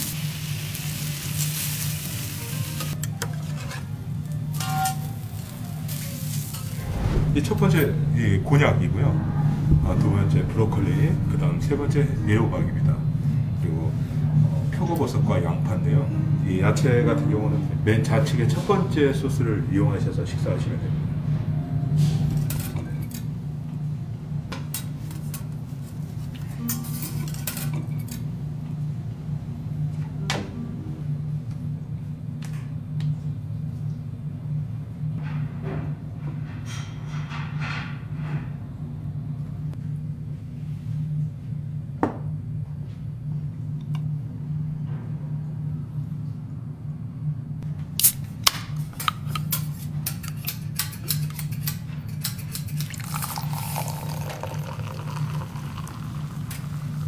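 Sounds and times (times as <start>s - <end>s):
food sizzling on hot plate: 0.0s - 3.0s
steady low hum: 3.8s - 36.6s
low hum: 5.0s - 17.0s.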